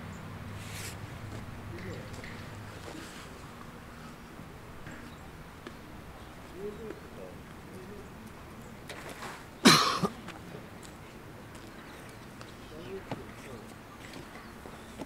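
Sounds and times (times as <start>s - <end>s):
ground mat handling rustle: 0.6s - 4.2s, 8.8s - 9.6s.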